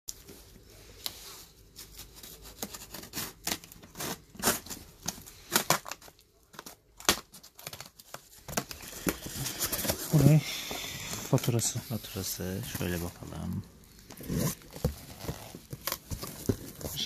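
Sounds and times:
cardboard flaps rustling: 1.5s - 10.4s, 11.1s - 17.0s
packing tape ripping off box: 2.4s - 10.3s.

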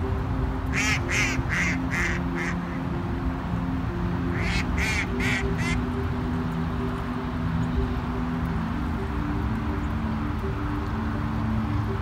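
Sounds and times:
ducks quacking: 0.7s - 2.8s, 4.3s - 5.9s.

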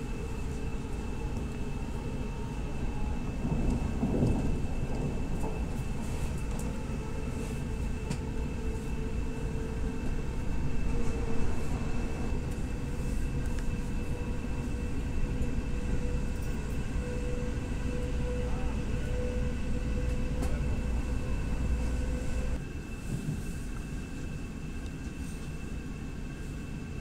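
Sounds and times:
train wheels rumbling on rail: 0.0s - 27.0s.

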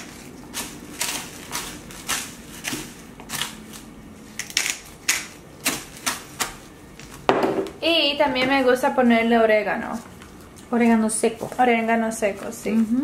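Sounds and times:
pepper grinder grinding: 0.0s - 6.3s.

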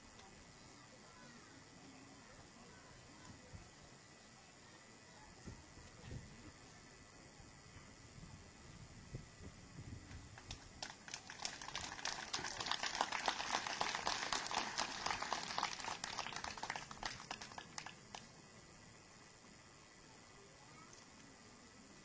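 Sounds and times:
crowd applauding: 10.4s - 18.3s.

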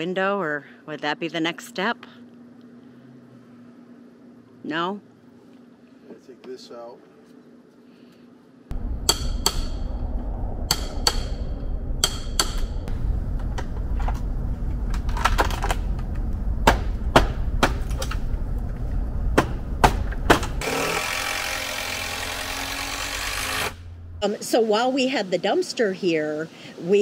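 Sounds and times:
low rumble: 8.7s - 20.6s, 23.4s - 24.2s
rushing noise: 8.8s - 16.6s.

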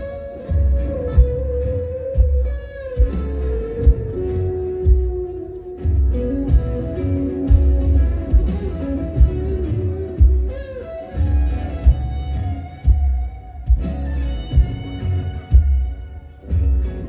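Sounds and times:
guitar melody: 0.0s - 17.0s
rock band playing live: 0.0s - 17.0s.

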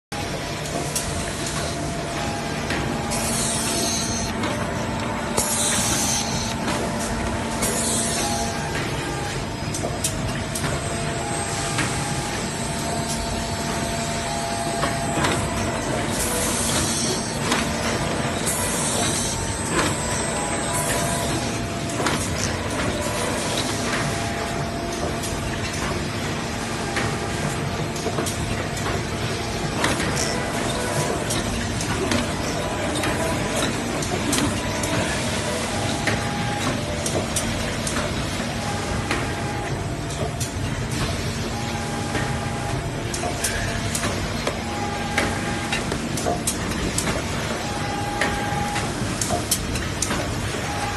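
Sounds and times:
machine mechanical din: 0.1s - 50.9s.

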